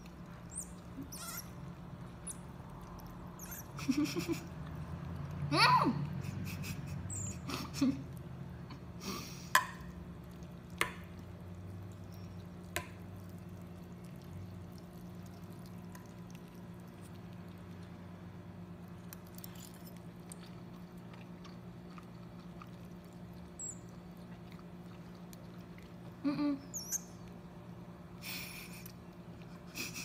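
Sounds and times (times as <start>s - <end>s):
low steady hum: 0.0s - 30.0s
noodles slurped and chewed: 8.0s - 26.2s.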